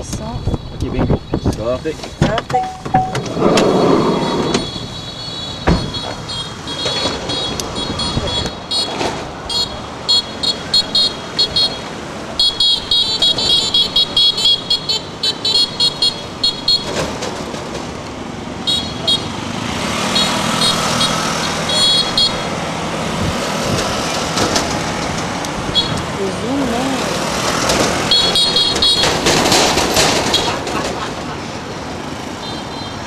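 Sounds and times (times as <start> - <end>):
vehicle engine hum: 0.0 - 32.5
street traffic noise: 0.0 - 33.0
high-pitched horn toots: 28.1 - 29.2.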